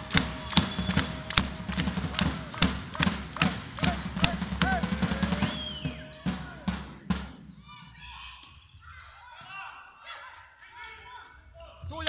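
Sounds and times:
supporters beating rhythm: 0:00.0 - 0:08.1
voices shouting and cheering: 0:00.0 - 0:12.0.

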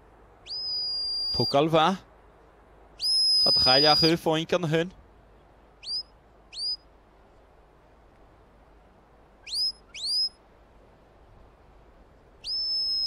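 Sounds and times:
rising whistles: 0:00.4 - 0:01.7, 0:03.0 - 0:04.2, 0:05.8 - 0:06.9, 0:09.4 - 0:10.4, 0:12.4 - 0:13.0.

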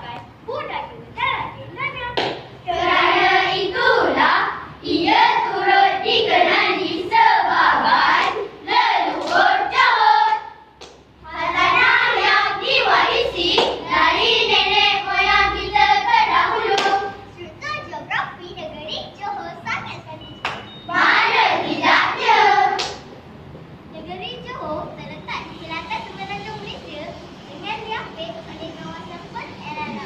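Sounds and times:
children's choir chanting and singing: 0:02.3 - 0:17.5, 0:20.8 - 0:23.1.

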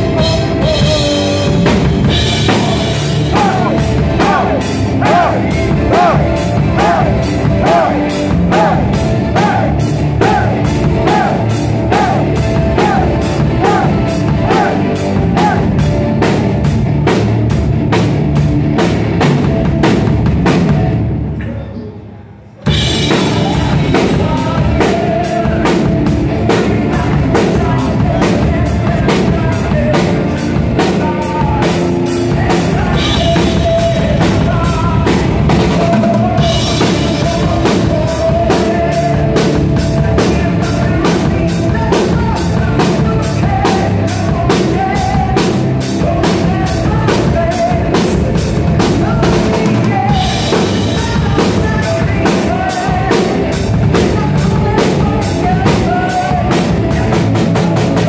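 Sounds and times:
man singing: 0:00.0 - 0:16.3, 0:22.7 - 0:58.0
drum kit beat: 0:00.0 - 0:21.3, 0:22.6 - 0:58.0
distorted electric guitar: 0:00.0 - 0:21.5.

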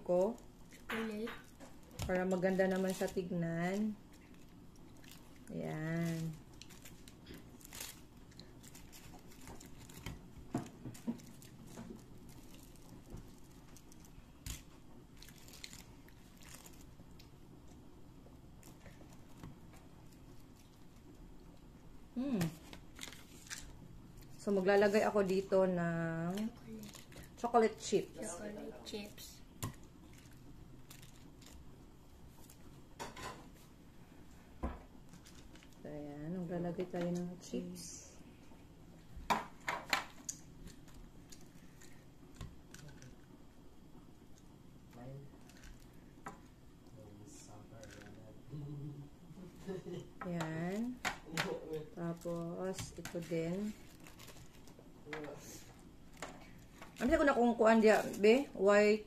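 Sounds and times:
paper cupcake liners crinkling: 0:02.0 - 0:10.2.

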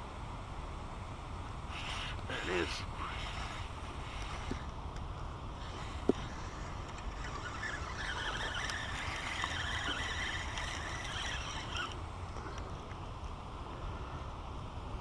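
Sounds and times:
wind rumble on microphone: 0:00.0 - 0:15.0
fishing reel whirring: 0:01.7 - 0:12.9.

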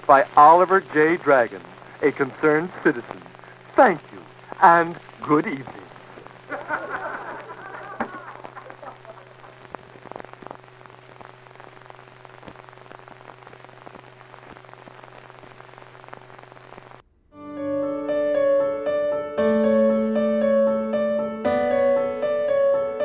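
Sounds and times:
low hum with crackle and pops: 0:00.0 - 0:17.4
piano melody over chords: 0:17.4 - 0:23.0.

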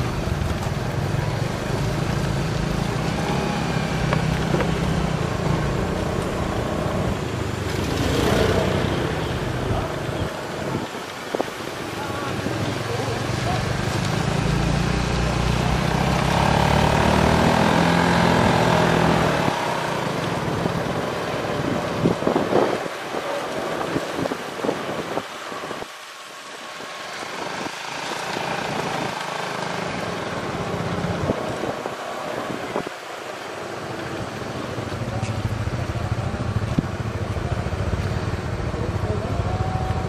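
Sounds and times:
motorcycle engine running: 0:34.2 - 0:40.0.

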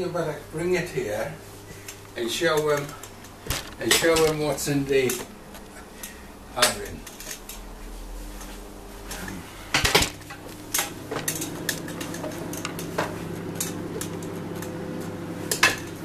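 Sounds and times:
oven humming: 0:00.0 - 0:16.0.

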